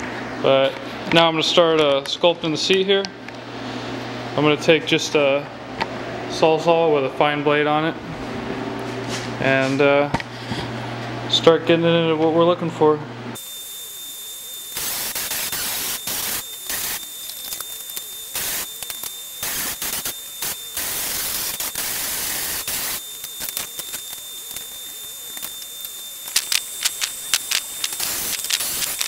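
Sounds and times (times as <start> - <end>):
reciprocating saw cutting foam: 13.4 - 29.0.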